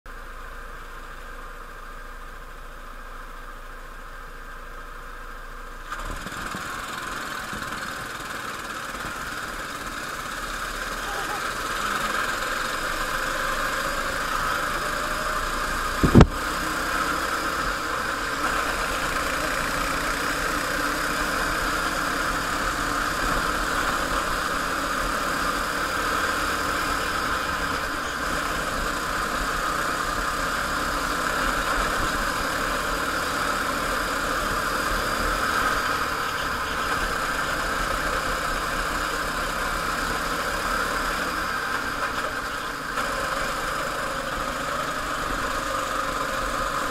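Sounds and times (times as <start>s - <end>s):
go-kart engine running: 0.1s - 46.9s
loud thump: 16.0s - 16.4s.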